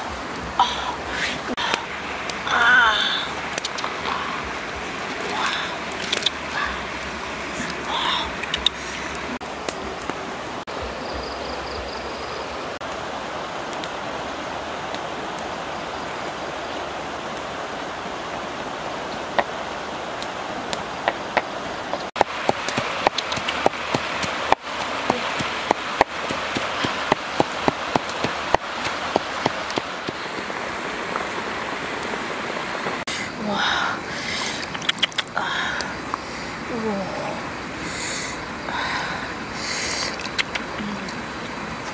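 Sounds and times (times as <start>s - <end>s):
campfire crackling: 0.0s - 36.7s, 37.4s - 41.9s
fire hiss: 25.4s - 34.6s, 37.6s - 40.2s.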